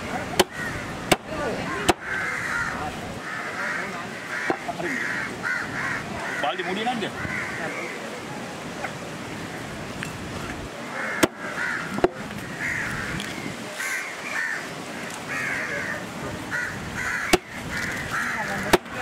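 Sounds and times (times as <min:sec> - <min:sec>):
crows cawing: 0:00.4 - 0:08.2, 0:10.8 - 0:19.0
sharp knocks: 0:04.5 - 0:04.7, 0:11.2 - 0:12.2.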